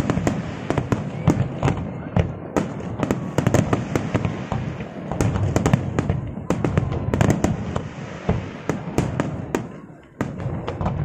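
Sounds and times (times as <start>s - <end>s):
fireworks bangs and crackles: 0.0s - 11.0s
low rumble of bursting shells: 0.0s - 11.0s.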